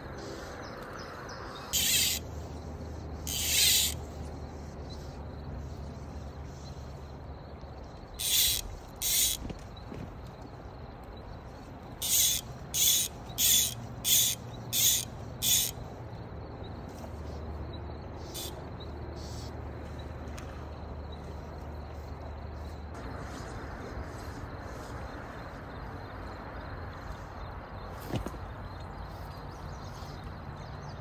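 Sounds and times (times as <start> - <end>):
fishing reel drag ratcheting: 1.8 - 2.2, 3.2 - 4.0, 8.2 - 9.4, 12.0 - 15.8.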